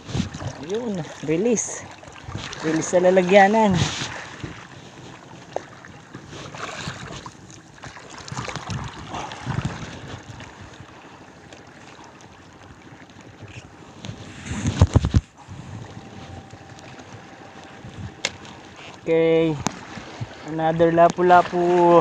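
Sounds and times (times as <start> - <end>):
wind on microphone: 0.0 - 12.1, 12.8 - 22.0
seawater lapping on rocks: 0.0 - 22.0.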